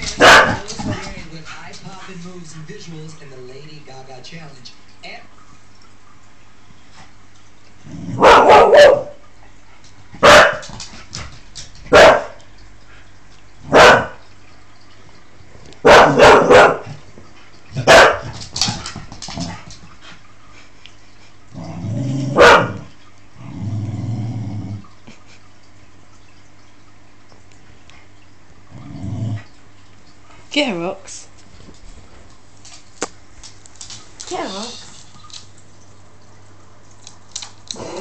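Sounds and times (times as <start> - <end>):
dog barking: 0.1 - 1.0, 8.2 - 9.2, 10.2 - 10.6, 11.9 - 12.4, 13.7 - 14.2, 15.8 - 16.9, 17.8 - 18.4, 22.4 - 22.9
dog growling: 7.8 - 8.7, 21.5 - 25.0, 28.7 - 29.6, 37.7 - 38.0.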